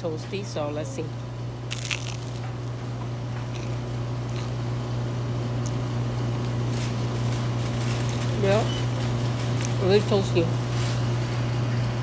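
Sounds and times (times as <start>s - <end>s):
steady low hum: 0.0s - 12.0s
crunch of biting toast: 1.7s - 2.5s, 3.4s - 4.6s
faint chewing: 1.7s - 2.6s, 3.4s - 4.6s.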